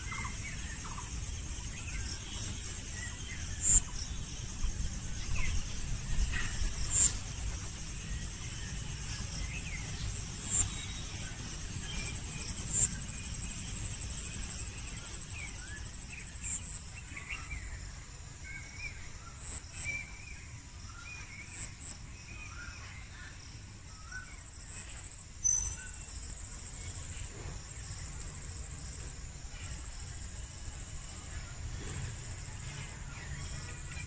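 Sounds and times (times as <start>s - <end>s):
low wind rumble: 0.0s - 17.0s
insects trilling: 0.0s - 34.0s.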